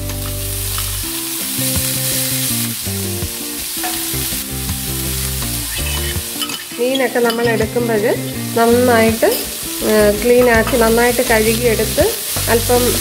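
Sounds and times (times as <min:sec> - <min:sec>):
background music held notes: 0:00.0 - 0:13.0
onions sizzling in frying pan: 0:00.0 - 0:13.0.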